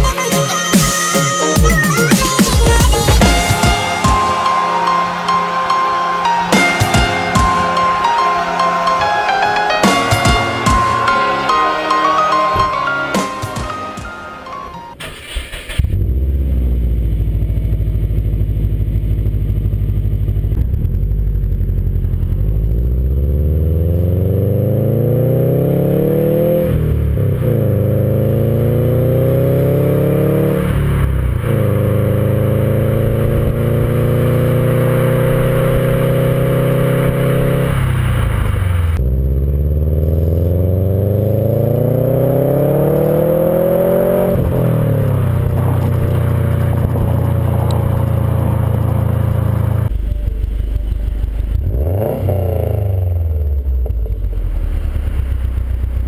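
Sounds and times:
car exhaust revving while driving: 15.8s - 56.0s.

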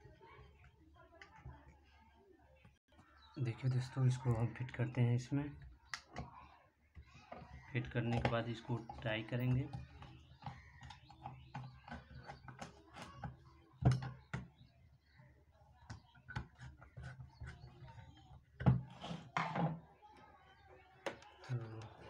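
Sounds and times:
metal knocking on tabletop: 18.6s - 19.8s.

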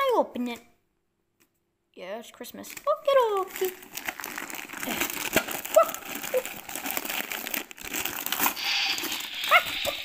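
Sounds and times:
wrapping paper tearing and crumpling: 2.7s - 10.0s.

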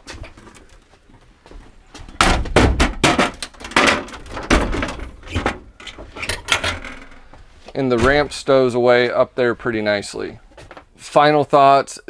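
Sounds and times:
metal ramp clanking and rattling: 2.4s - 7.3s.

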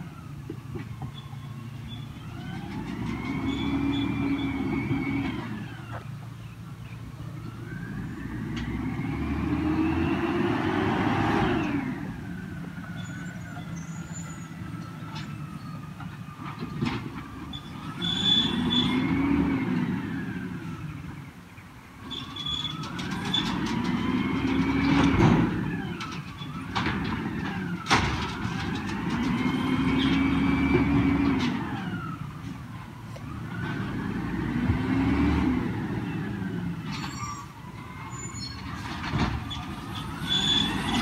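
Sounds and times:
garbage truck engine revving: 7.7s - 12.4s, 17.2s - 20.9s, 22.1s - 32.3s, 33.3s - 41.0s.

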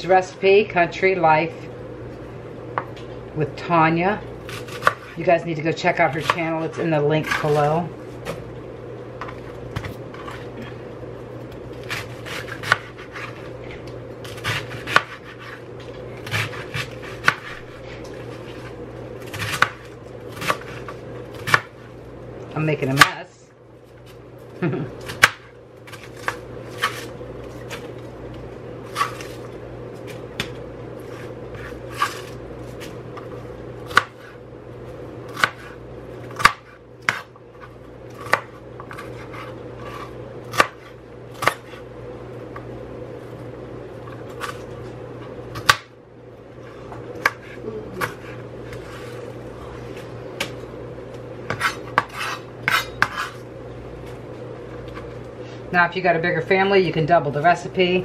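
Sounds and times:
steady low hum: 0.0s - 58.0s
knife chopping on cutting board: 11.8s - 13.4s, 14.3s - 15.6s, 16.2s - 17.8s, 35.3s - 35.8s, 36.4s - 37.3s, 51.4s - 53.4s.

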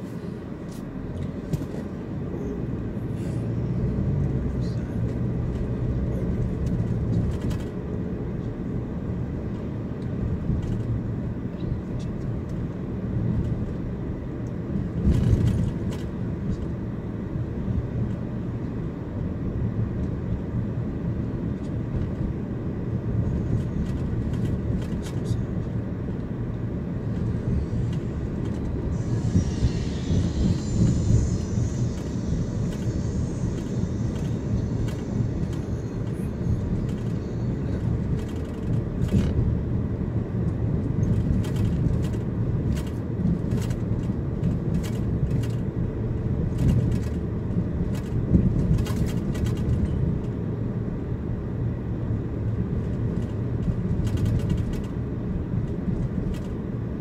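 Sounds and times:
car road and engine rumble: 0.0s - 57.0s
high hiss: 27.3s - 38.4s.

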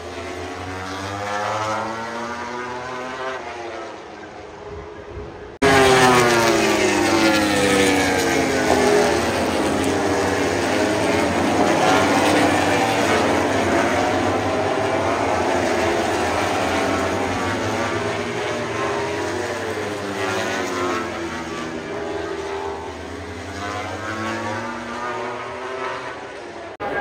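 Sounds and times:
engines droning: 0.0s - 27.0s.

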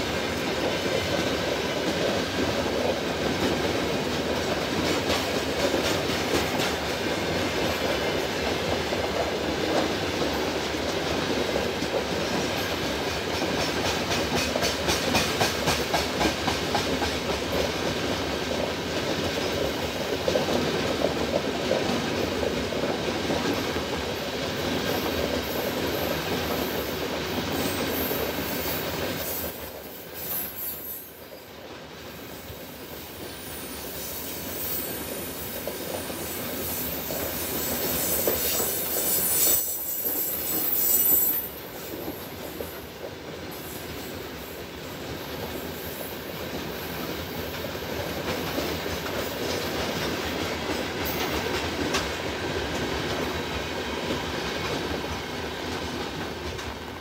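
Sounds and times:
freight train wheels on rails: 0.0s - 57.0s
high-pitched wheel squeal: 38.0s - 41.5s.

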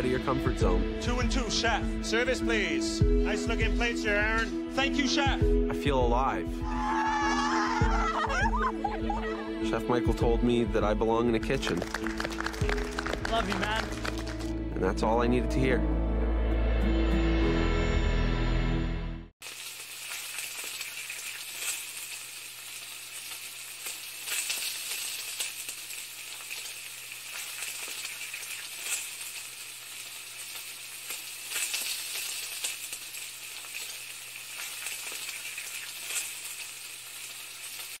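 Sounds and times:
food sizzling in a pan: 19.4s - 38.0s.

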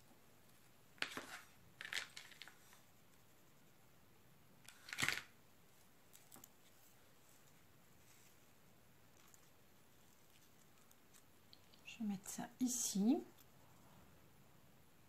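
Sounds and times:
paper rustling: 1.0s - 2.9s, 4.7s - 5.3s.

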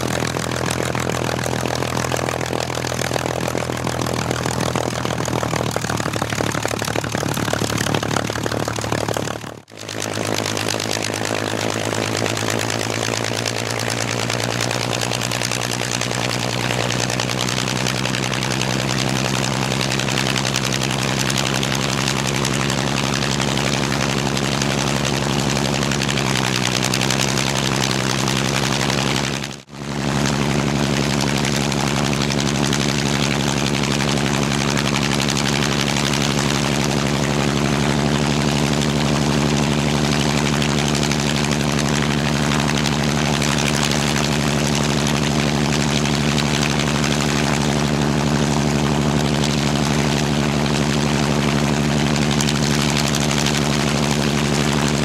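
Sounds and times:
propeller plane engine running: 0.0s - 55.0s.

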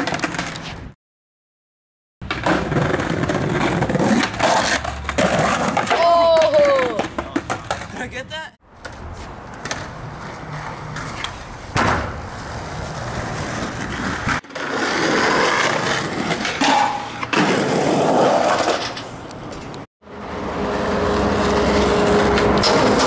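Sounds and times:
skateboard clack: 0.0s - 0.7s, 2.2s - 8.2s, 8.8s - 19.8s
skateboard wheels rolling on concrete: 0.0s - 1.0s, 2.2s - 23.0s.

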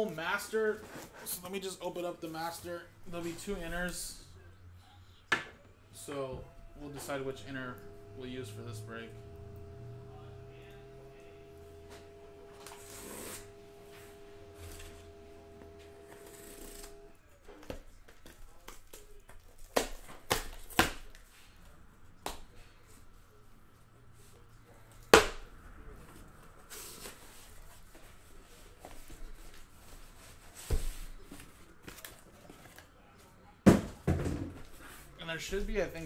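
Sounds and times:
cardboard rustling and scraping: 10.9s - 17.1s.

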